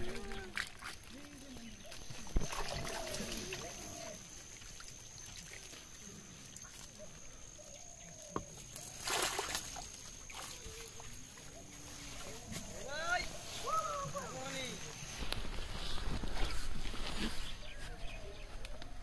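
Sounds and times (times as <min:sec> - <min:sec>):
water sloshing and splashing: 0:00.0 - 0:18.1
faint voices: 0:10.4 - 0:19.0.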